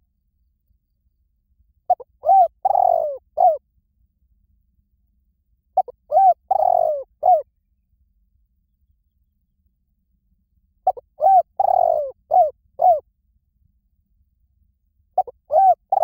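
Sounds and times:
dove cooing: 0:01.9 - 0:03.6, 0:05.8 - 0:07.5, 0:10.8 - 0:13.0, 0:15.2 - 0:16.0.

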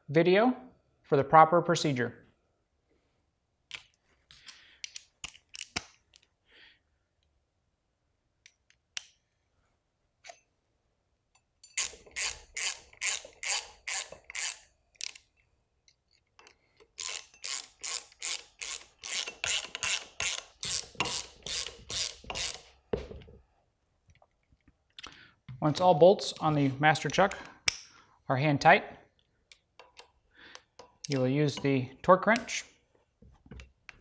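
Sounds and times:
socket ratchet clicking: 0:04.8 - 0:06.3, 0:11.6 - 0:22.7, 0:29.5 - 0:31.7.

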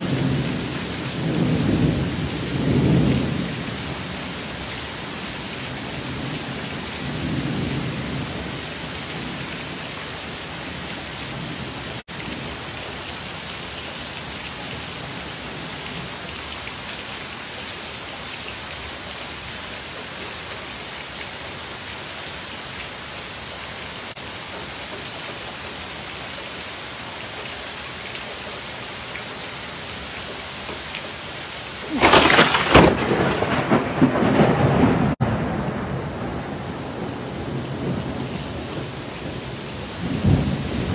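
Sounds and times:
heavy rain pouring: 0:00.0 - 0:40.9
thunder rumbling: 0:31.8 - 0:39.4.

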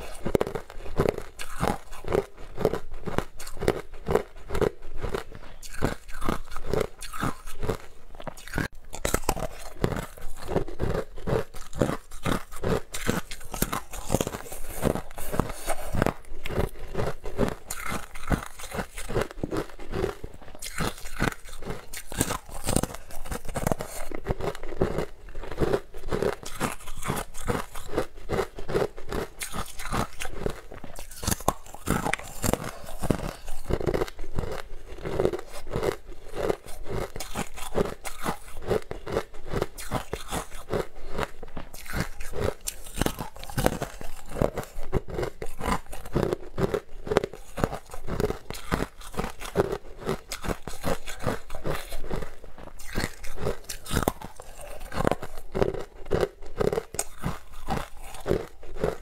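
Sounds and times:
crunching and chewing ice bar: 0:00.0 - 0:59.0.

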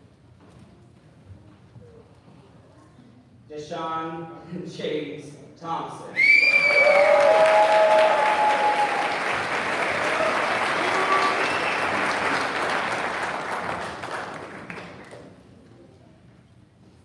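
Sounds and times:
people cheering: 0:06.2 - 0:15.0
audience applauding: 0:06.4 - 0:15.4.

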